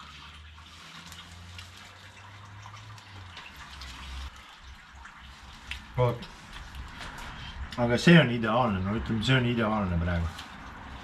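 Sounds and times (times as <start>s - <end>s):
water running into sink: 0.0s - 8.7s
water drips: 0.0s - 11.0s.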